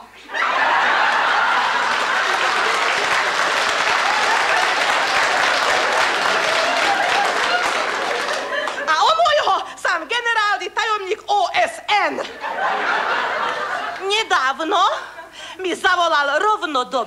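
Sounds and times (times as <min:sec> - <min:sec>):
audience applause: 0:00.4 - 0:08.9.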